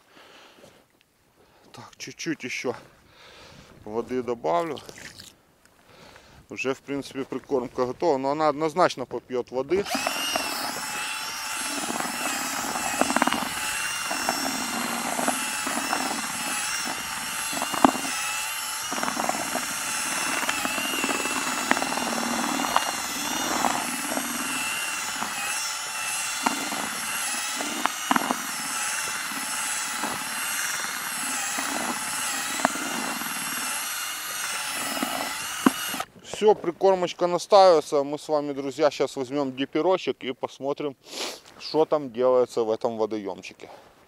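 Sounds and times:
cordless drill running: 0:09.8 - 0:36.1
whisk churning bait in bucket: 0:09.8 - 0:36.1.

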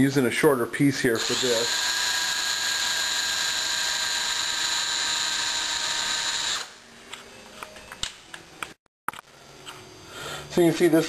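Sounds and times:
electric drill running: 0:01.2 - 0:06.8.

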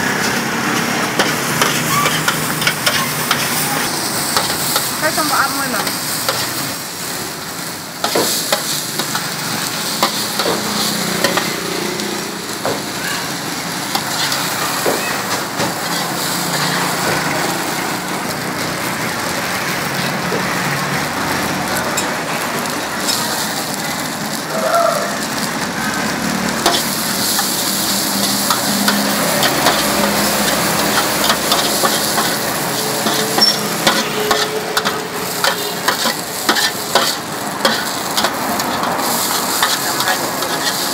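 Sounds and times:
noodles sizzling in a wok: 0:00.0 - 0:40.9
metal spatula scraping a pan: 0:01.2 - 0:03.6, 0:26.6 - 0:40.9.

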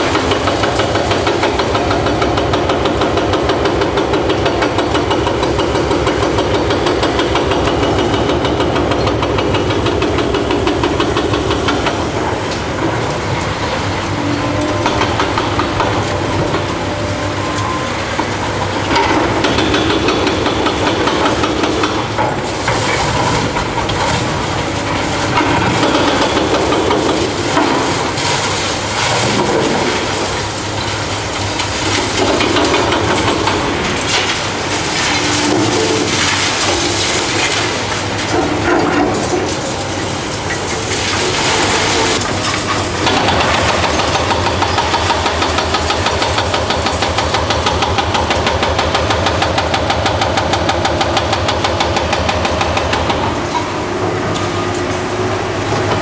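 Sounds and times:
hydraulic breaker hammering concrete: 0:00.0 - 0:13.7, 0:14.5 - 0:17.2, 0:18.2 - 0:54.4
diesel excavator engines: 0:00.0 - 0:56.0.

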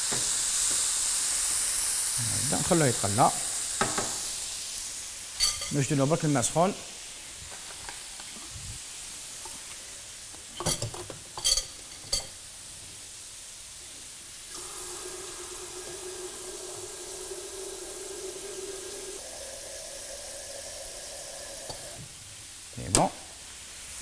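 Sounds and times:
water running into kettle: 0:00.0 - 0:04.6, 0:14.5 - 0:22.4.

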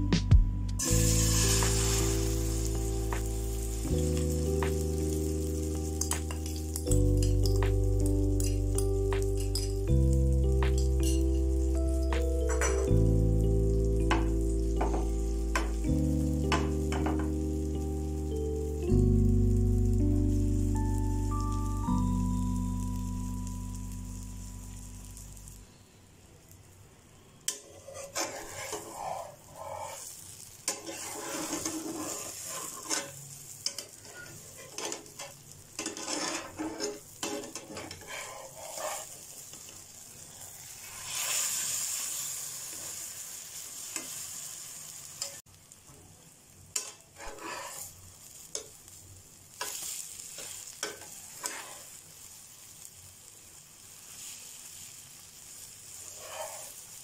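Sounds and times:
omelette sizzling in a frying pan: 0:00.8 - 0:57.0
spatula scraping a pan: 0:27.5 - 0:39.8, 0:46.8 - 0:48.5, 0:49.6 - 0:52.0, 0:55.9 - 0:57.0.

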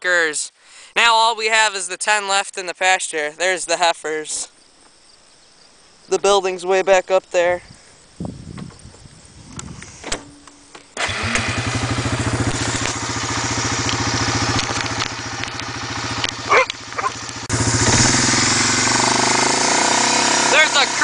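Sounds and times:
quad engine running: 0:11.0 - 0:21.0.

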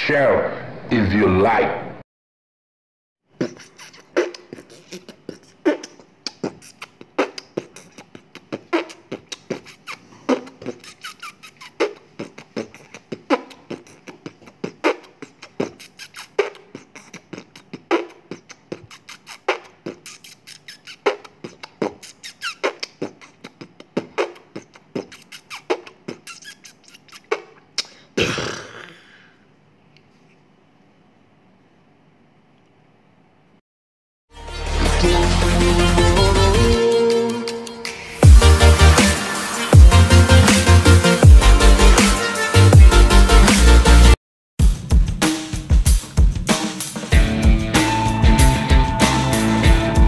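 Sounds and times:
rhythmic percussive beat: 0:34.8 - 0:50.0.

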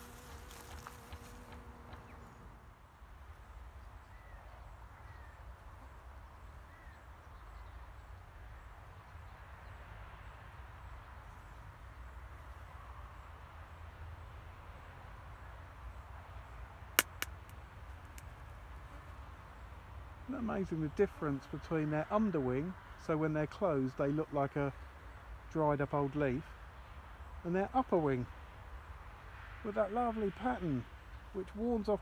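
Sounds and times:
faint bird chirps: 0:03.6 - 0:09.3
sharp clicks: 0:17.0 - 0:18.3.

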